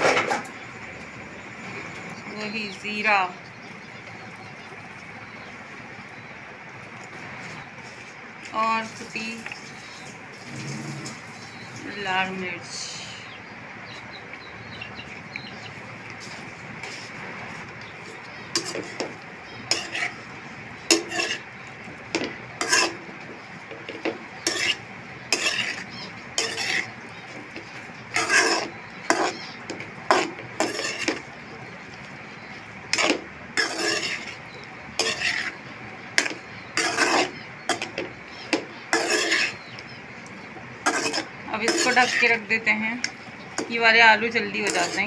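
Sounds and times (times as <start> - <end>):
metal spoon scraping pan: 16.1 - 39.9, 40.8 - 45.0.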